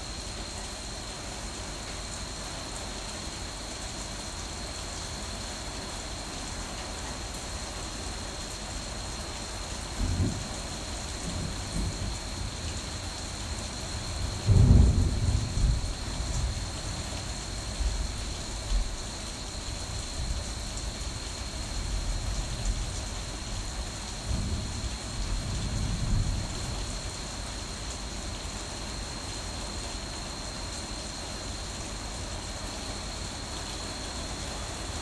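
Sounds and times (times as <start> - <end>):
rain falling: 0.0 - 35.0
low rumble of thunder: 9.9 - 19.0, 19.7 - 27.4.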